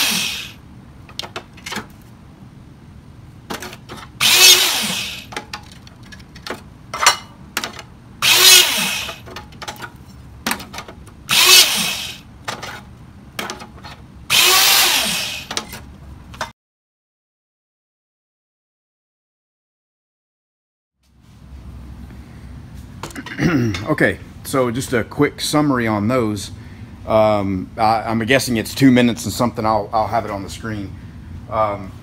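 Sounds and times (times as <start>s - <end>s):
hydraulic hole punch motor: 0.0s - 0.6s, 3.5s - 5.5s, 7.6s - 9.4s, 10.5s - 12.8s, 13.4s - 15.8s
steel pieces clanking: 3.5s - 16.5s.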